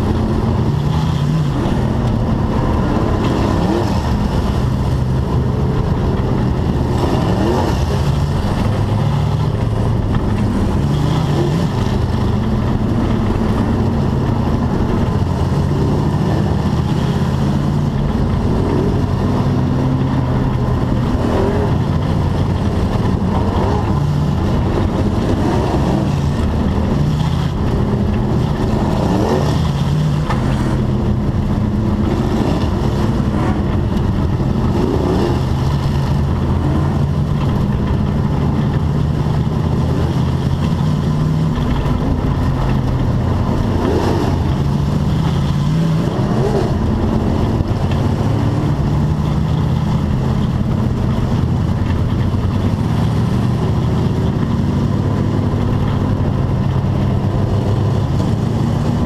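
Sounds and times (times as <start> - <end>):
race car engine running: 0.0 - 59.0.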